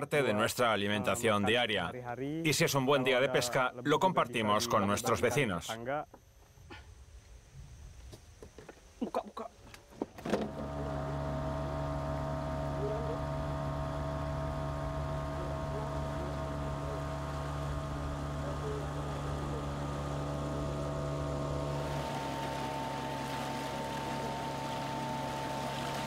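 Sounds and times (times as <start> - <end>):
small boat motor running: 10.2 - 26.0.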